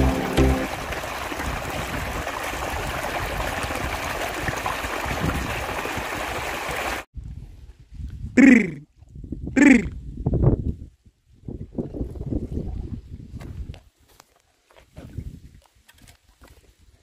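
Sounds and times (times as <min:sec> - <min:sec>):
water gushing into trough: 0:00.0 - 0:07.0.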